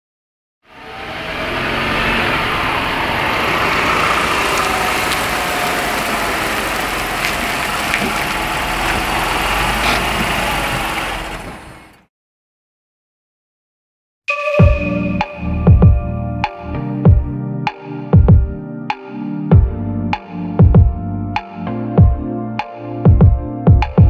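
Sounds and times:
van engine running: 0.8s - 12.0s.

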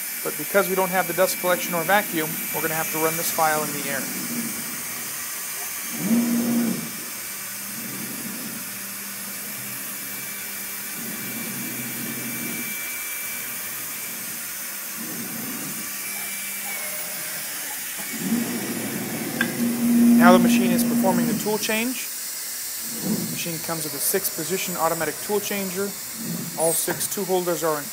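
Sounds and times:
motor hum: 0.0s - 27.9s
rush of compressed cooling air: 0.0s - 27.9s.

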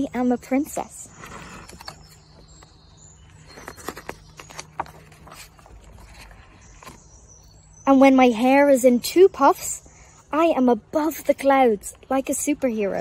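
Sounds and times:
book page turning: 1.1s - 7.0s
paper rustling: 3.2s - 7.0s.

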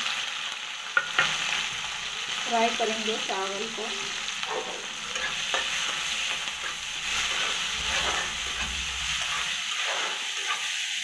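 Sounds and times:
onions sizzling in hot oil: 0.0s - 11.0s
stirring scraping a pan: 1.0s - 2.2s, 3.8s - 11.0s.

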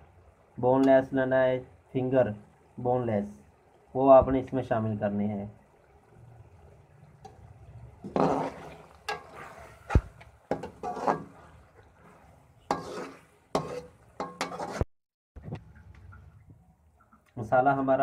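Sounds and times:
metal spoon scraping a wok: 8.0s - 14.8s
spoon knocking against pan: 10.5s - 11.2s, 13.6s - 14.8s.

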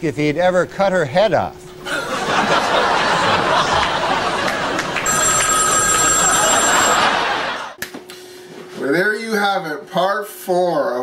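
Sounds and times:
studio audience laughing: 1.8s - 7.8s
telephone ringing: 3.9s - 7.8s.

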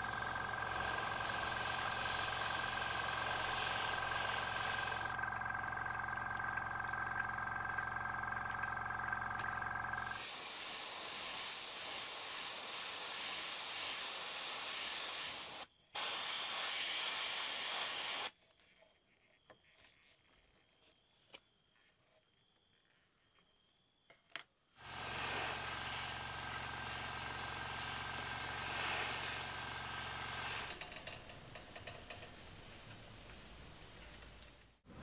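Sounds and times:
airbrush air hiss: 0.7s - 5.1s, 10.1s - 18.3s, 24.8s - 30.8s.

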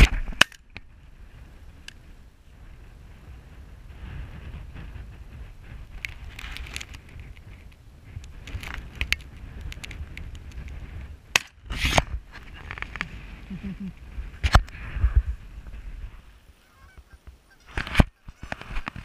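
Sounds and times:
geese honking: 16.6s - 18.4s.

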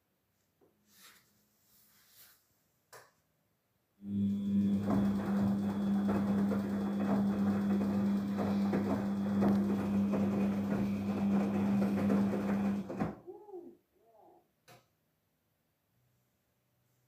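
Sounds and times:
washing machine motor humming: 4.0s - 13.2s.

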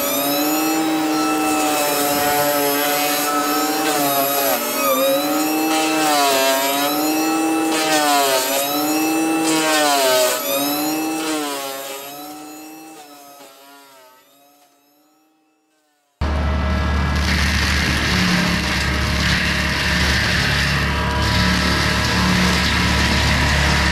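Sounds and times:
mulcher whining through wood: 0.0s - 15.5s, 16.2s - 23.9s.

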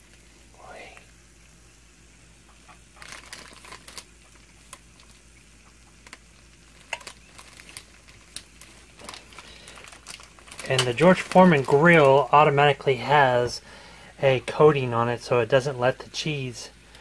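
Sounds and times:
chicken crackling on grill: 2.4s - 13.8s.

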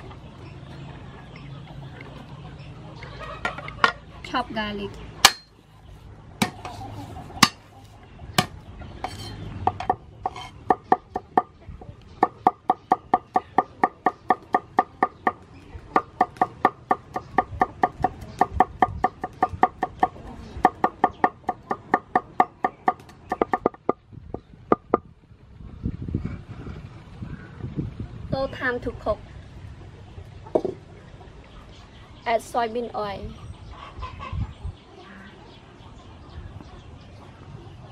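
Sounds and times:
cleaver chopping on wooden board: 5.2s - 5.5s, 7.4s - 7.6s, 16.0s - 24.0s.

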